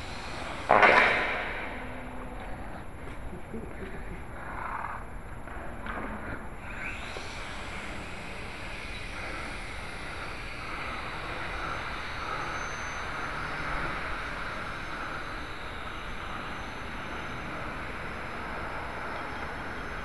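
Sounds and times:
toy quadcopters buzzing: 0:05.5 - 0:20.0.

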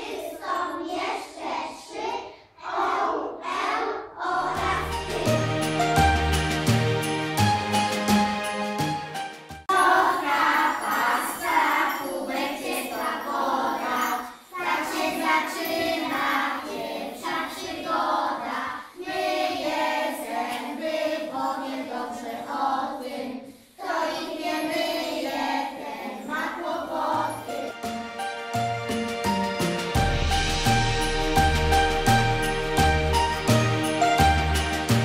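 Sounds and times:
children singing in chorus: 0:00.0 - 0:05.4, 0:09.7 - 0:27.7
instrumental music: 0:04.6 - 0:11.8, 0:27.3 - 0:35.0.

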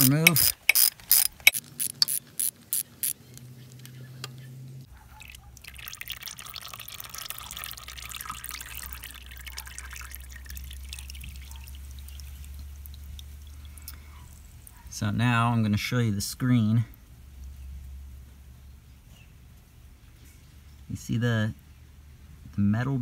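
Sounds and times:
quick clicks: 0:00.0 - 0:04.4
oil trickling into drain pan: 0:05.0 - 0:14.8.

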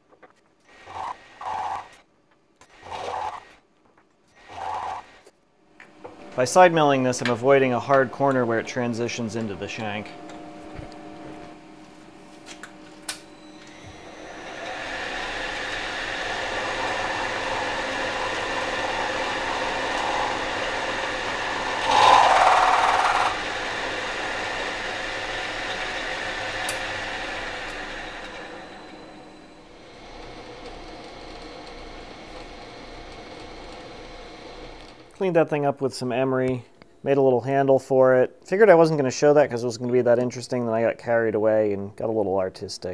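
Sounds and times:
milling machine whine: 0:02.7 - 0:03.6, 0:04.4 - 0:35.2
end mill cutting steel: 0:13.1 - 0:31.9.

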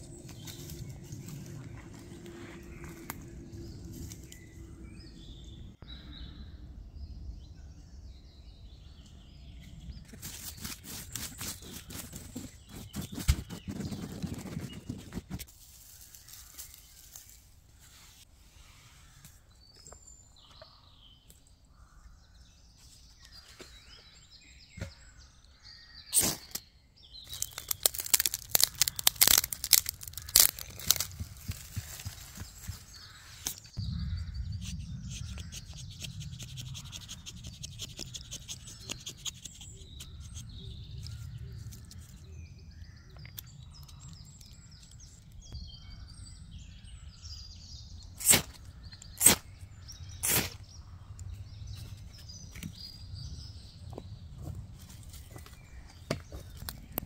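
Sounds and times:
small birds chirping: 0:00.0 - 0:57.0
twigs snapping and crackling: 0:27.2 - 0:33.7.

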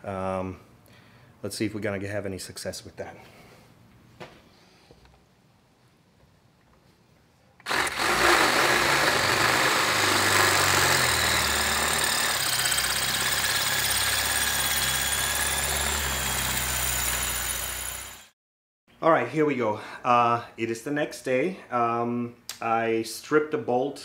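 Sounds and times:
cordless drill running: 0:07.6 - 0:18.4.

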